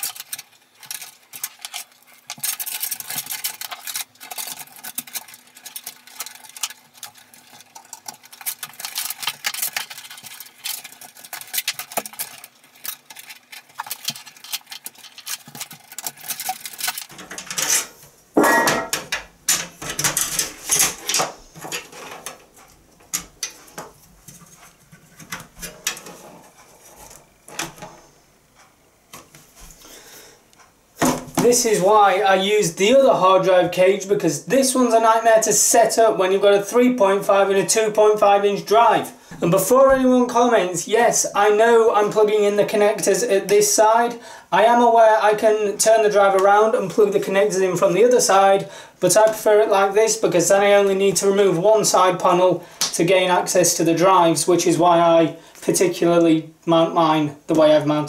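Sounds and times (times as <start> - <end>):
metal clatter: 0.0 - 22.4
metal drive trays clicking and clinking: 7.9 - 23.7.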